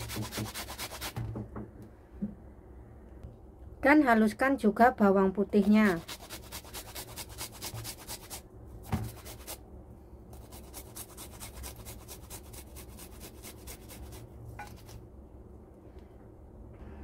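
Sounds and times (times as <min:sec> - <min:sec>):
garlic grating on metal grater: 0:00.0 - 0:01.2, 0:05.6 - 0:08.4, 0:10.3 - 0:15.0
knock: 0:01.1 - 0:02.4.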